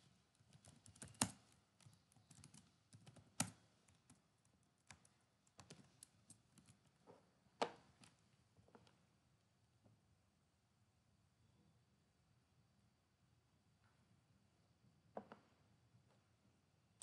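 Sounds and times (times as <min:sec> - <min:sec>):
keyboard typing: 0:00.3 - 0:07.0
sharp keyboard clicks: 0:00.4 - 0:06.8.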